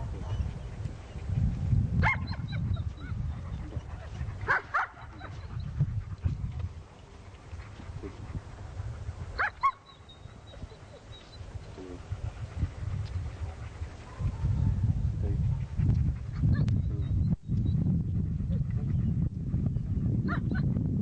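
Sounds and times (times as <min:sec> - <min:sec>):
steady low rumble: 0:00.0 - 0:21.0
dog barking: 0:02.0 - 0:02.6, 0:04.4 - 0:05.4, 0:09.4 - 0:10.0, 0:13.5 - 0:14.8.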